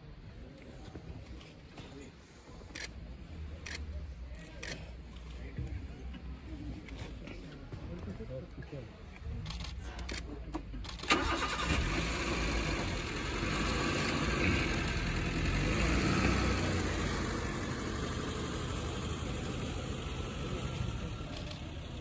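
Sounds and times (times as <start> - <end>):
vehicle engine starting and rumbling: 10.8 - 22.0.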